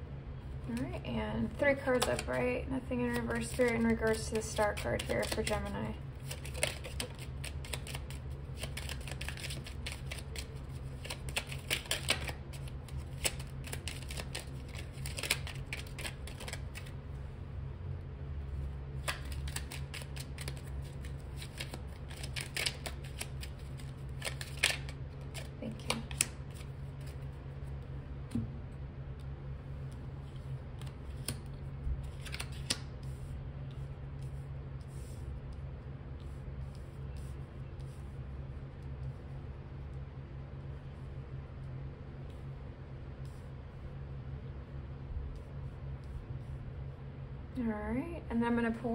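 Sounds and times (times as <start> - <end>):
steady low hum: 0.0 - 48.9
cards being shuffled: 1.5 - 2.4, 3.0 - 17.0, 19.0 - 28.4, 29.9 - 35.2.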